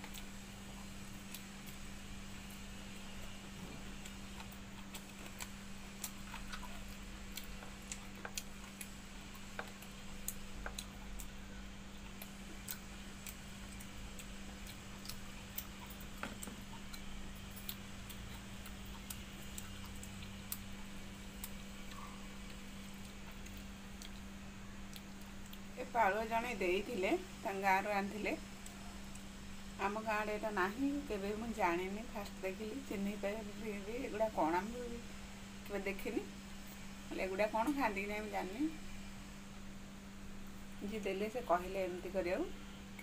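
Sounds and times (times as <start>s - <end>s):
steady low hum: 0.0s - 43.0s
chewing mouth clicks and smacks: 3.6s - 11.4s, 12.0s - 25.7s.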